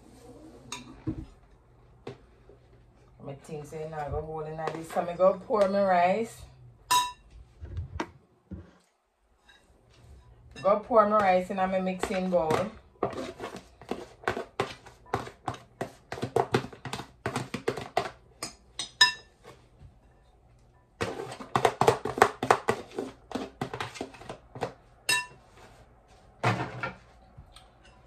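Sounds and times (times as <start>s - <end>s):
glass bowl clinks: 25.1s - 25.4s.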